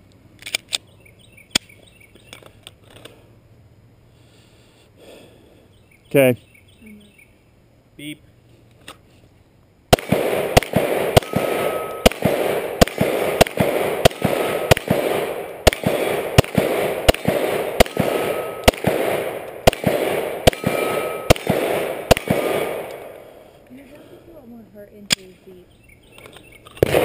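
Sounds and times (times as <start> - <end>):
pistol shots with echo: 9.9 - 23.5, 26.8 - 27.0.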